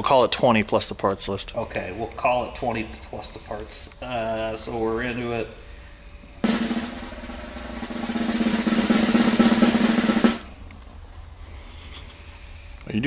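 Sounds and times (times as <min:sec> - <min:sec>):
snare drum roll: 0:06.4 - 0:10.6.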